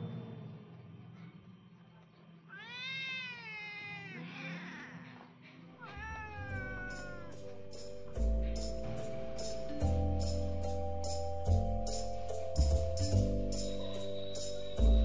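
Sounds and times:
cat meowing: 0:02.5 - 0:05.2, 0:05.8 - 0:07.4.

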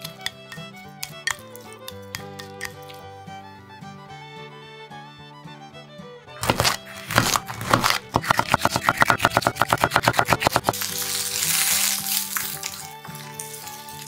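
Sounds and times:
knife chopping on wooden board: 0:06.4 - 0:10.8
peppers sizzling in frying pan: 0:08.2 - 0:14.0.

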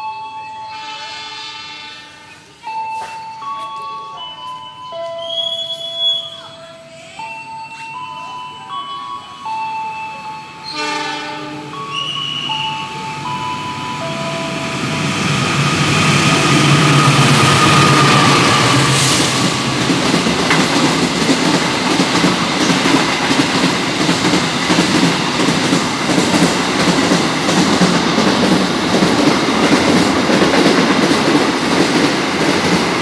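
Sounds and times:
locomotive engine drone: 0:11.8 - 0:30.2.

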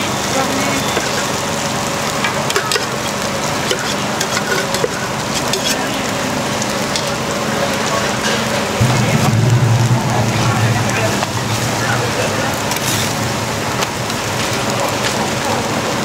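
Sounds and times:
food sizzling on griddle: 0:00.0 - 0:08.8, 0:12.6 - 0:16.0
faint voices: 0:00.0 - 0:16.0.

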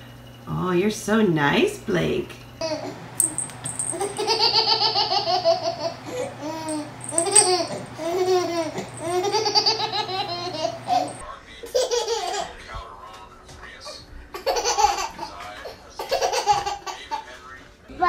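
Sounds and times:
high-pitched hearty laughter: 0:04.0 - 0:06.1, 0:08.3 - 0:11.0.

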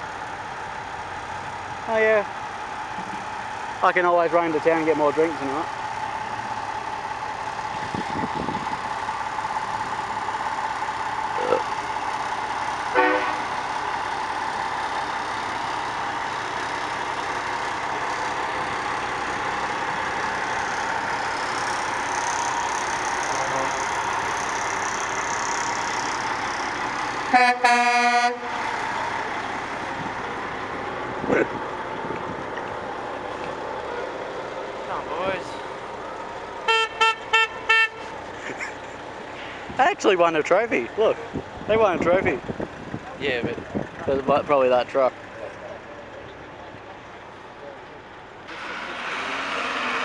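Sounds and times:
truck engine driving past: 0:00.0 - 0:50.0
truck horn: 0:12.9 - 0:13.5, 0:23.4 - 0:23.8, 0:27.3 - 0:28.6, 0:36.6 - 0:38.1.

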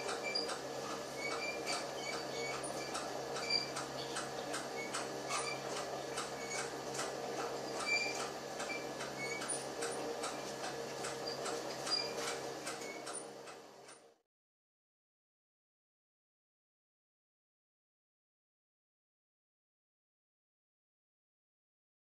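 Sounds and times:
conveyor hum: 0:00.0 - 0:14.2
short high squeaks: 0:01.2 - 0:03.8, 0:07.7 - 0:09.6, 0:11.2 - 0:13.2.

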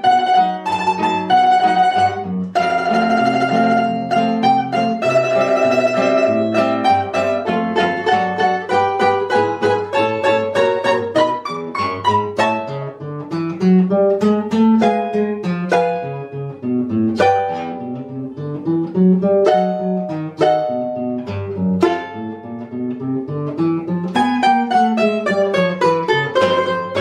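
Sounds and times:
classical guitar playing: 0:00.0 - 0:27.0
mandolin playing: 0:00.0 - 0:27.0.

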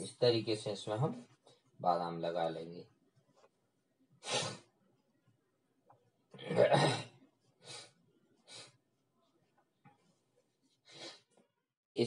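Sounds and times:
person breathing: 0:07.6 - 0:08.8, 0:10.8 - 0:11.3.

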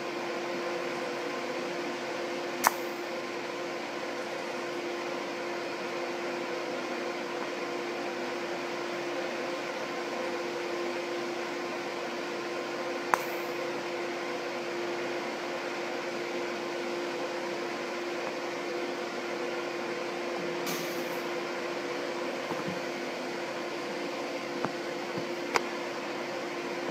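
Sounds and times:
welding arc hissing: 0:02.6 - 0:03.1, 0:20.7 - 0:21.3.

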